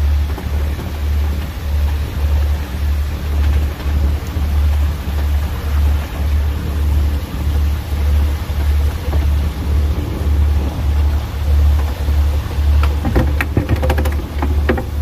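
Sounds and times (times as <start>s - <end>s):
boat engine throbbing: 0.0s - 15.0s.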